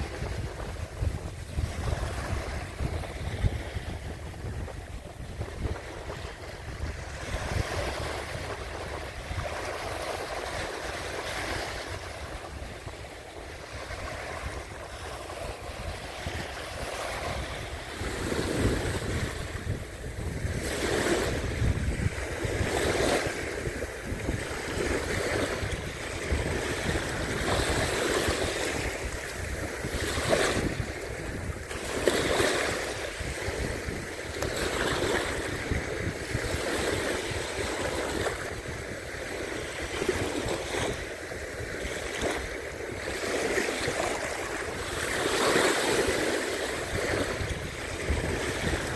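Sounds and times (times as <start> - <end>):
waves lapping on sand: 0.0 - 48.9
wind rumbling on microphone: 0.0 - 48.9.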